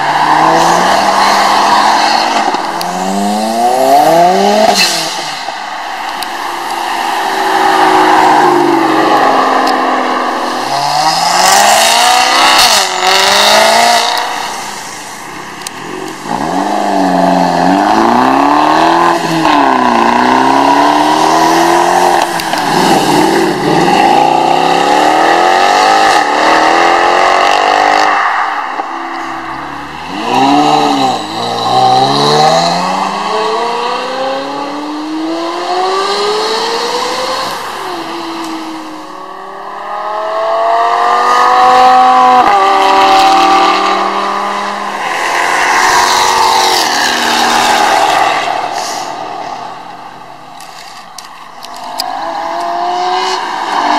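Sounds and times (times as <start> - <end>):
cars accelerating past: 0.0 - 15.0, 15.6 - 50.4, 51.7 - 53.9
engines revving through gears: 7.6 - 14.3, 30.0 - 38.6.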